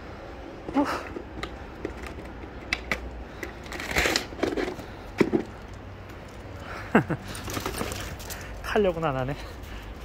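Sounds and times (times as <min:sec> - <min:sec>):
low outdoor rumble: 0:00.0 - 0:10.0
dog and walker footsteps on pavement: 0:07.3 - 0:10.0.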